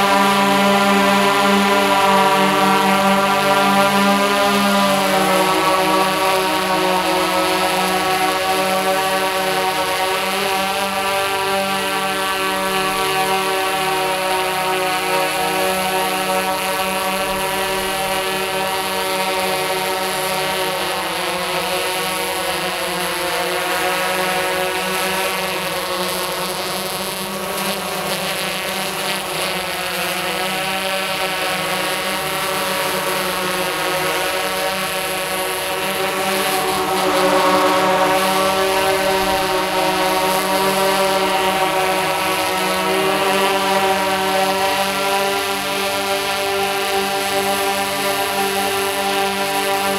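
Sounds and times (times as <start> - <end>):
drone motors humming: 31.7 - 43.8.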